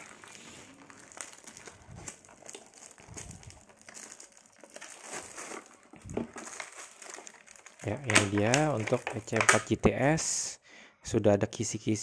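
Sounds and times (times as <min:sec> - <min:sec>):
cardboard box crinkling and rustling: 0:00.0 - 0:09.5.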